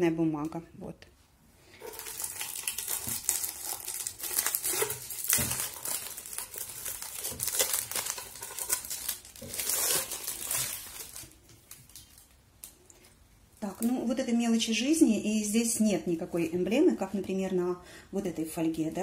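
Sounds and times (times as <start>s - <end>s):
plastic shrink-wrap crinkling: 1.7s - 14.1s.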